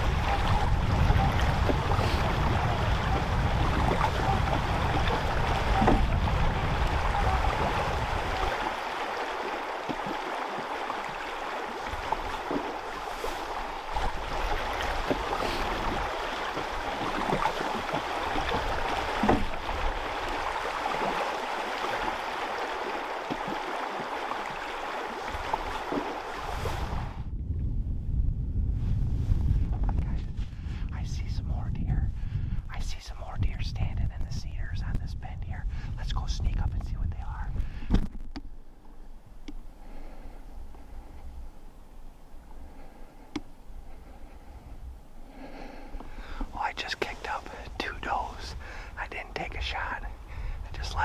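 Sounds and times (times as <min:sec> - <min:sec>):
flowing river water: 0:00.0 - 0:27.2, 0:37.8 - 0:51.0
wind rumbling on microphone: 0:00.0 - 0:51.0.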